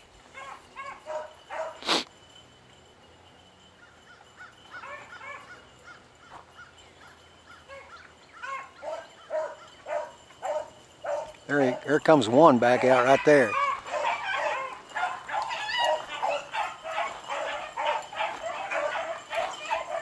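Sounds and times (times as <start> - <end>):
dogs barking and bawling: 0.2 - 2.0, 3.9 - 12.2, 12.8 - 20.0.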